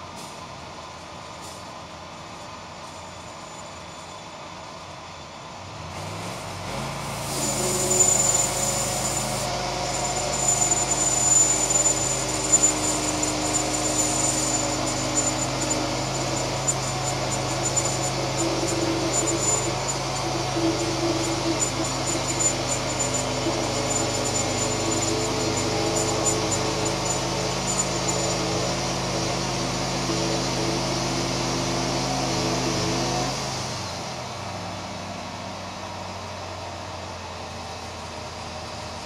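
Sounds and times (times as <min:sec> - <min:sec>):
bandsaw mill engine revving: 0:05.8 - 0:35.5
thin high whine: 0:07.1 - 0:33.8.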